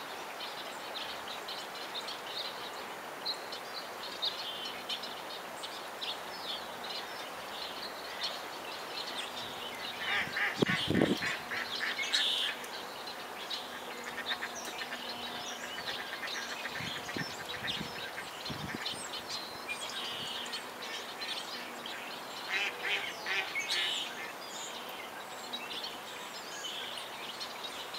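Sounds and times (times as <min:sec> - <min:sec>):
ducks calling: 0:09.8 - 0:12.8, 0:13.7 - 0:19.2, 0:22.4 - 0:24.4.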